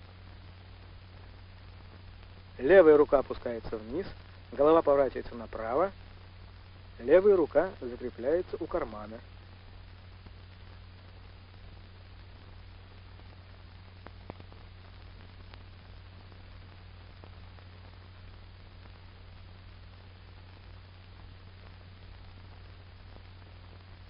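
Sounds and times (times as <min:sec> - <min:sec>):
film soundtrack hiss: 0:00.0 - 0:24.0
faint clicks: 0:10.2 - 0:17.7.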